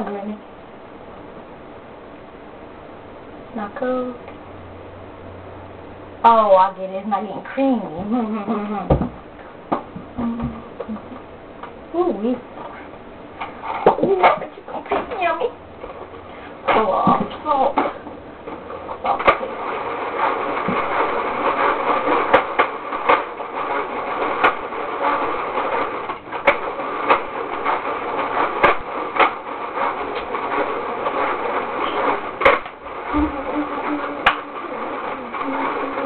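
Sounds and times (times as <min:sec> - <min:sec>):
toy machine whirring and grinding: 0:18.6 - 0:36.0.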